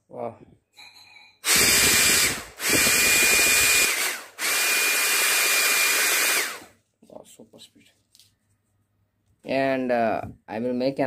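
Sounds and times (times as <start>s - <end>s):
hair dryer fan whining: 1.4s - 6.7s.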